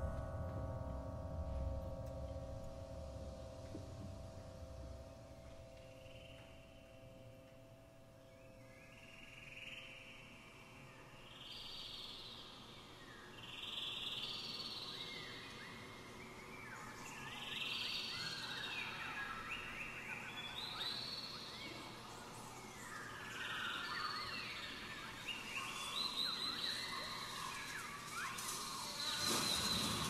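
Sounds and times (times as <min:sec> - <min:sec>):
soft held chord: 0:00.0 - 0:11.1
wind orchestra airy hiss: 0:11.0 - 0:30.0.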